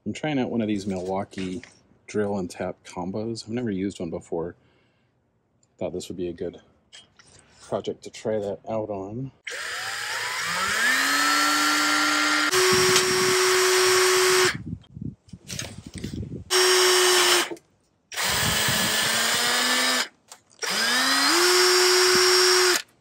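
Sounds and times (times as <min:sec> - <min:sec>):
power drill whining: 0:09.5 - 0:14.6, 0:16.5 - 0:22.9.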